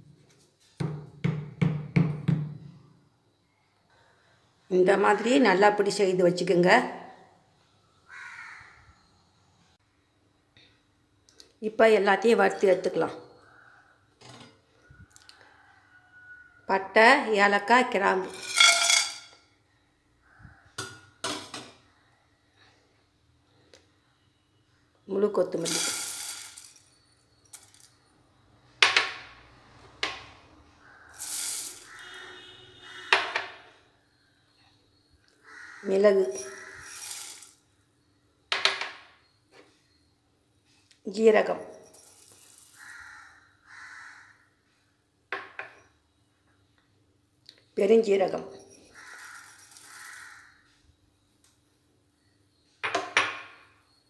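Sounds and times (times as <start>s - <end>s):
seeds rattling into a pan: 18.3s - 19.4s, 25.6s - 28.0s, 31.1s - 32.3s, 36.3s - 37.6s, 41.9s - 43.1s, 48.9s - 50.4s.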